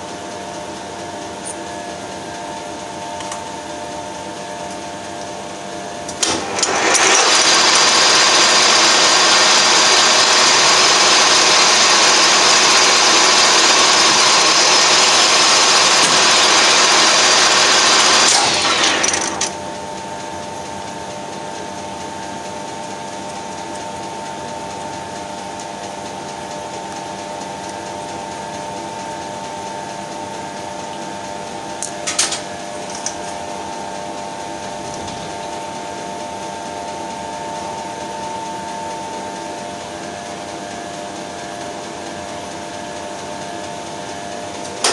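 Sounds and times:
steady machine hum: 0:00.0 - 0:44.9
lathe whining: 0:06.2 - 0:25.9.

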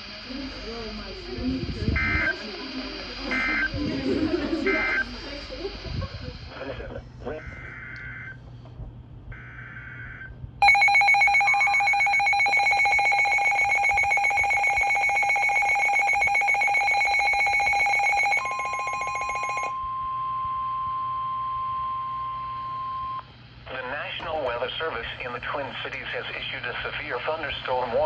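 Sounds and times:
steady warning alarm tone: 0:00.0 - 0:05.8, 0:07.3 - 0:08.4, 0:09.3 - 0:23.2
buzzy data burst: 0:00.0 - 0:06.7
pulsing electronic alarm: 0:00.6 - 0:05.6, 0:07.3 - 0:08.4, 0:09.4 - 0:23.2.

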